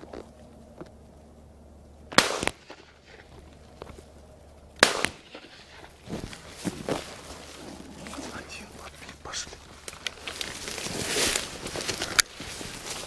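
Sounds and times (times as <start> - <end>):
shotgun shots: 2.1 - 3.0, 4.8 - 5.7.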